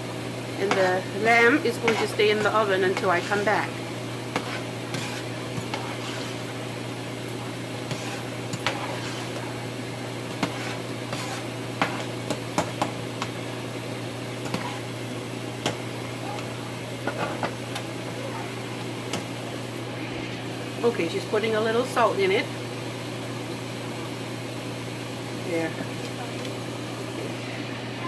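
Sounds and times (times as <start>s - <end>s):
washing machine hum: 0.0s - 28.0s
spoon scraping a metal pot: 4.4s - 6.4s, 7.9s - 9.5s, 10.3s - 12.1s.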